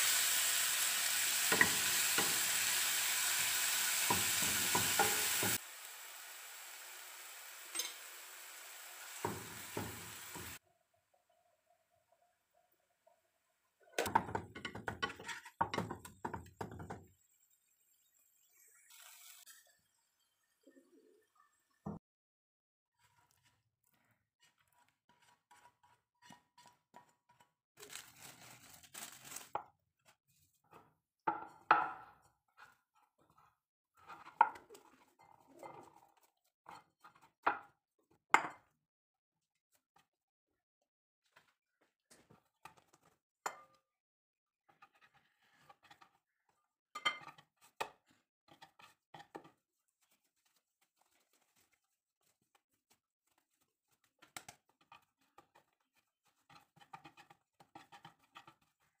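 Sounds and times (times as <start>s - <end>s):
cling film crinkling: 27.8s - 29.5s.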